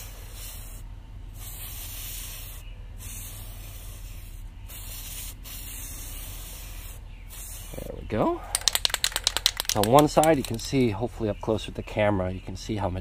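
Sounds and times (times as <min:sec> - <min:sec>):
aerosol can spraying: 0:01.4 - 0:07.7.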